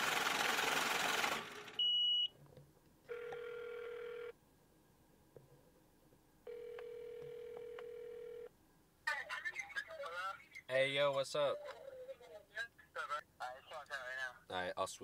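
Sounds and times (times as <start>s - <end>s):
short high beep: 1.8s - 2.3s
phone ringback tone: 3.1s - 4.4s, 6.5s - 8.5s.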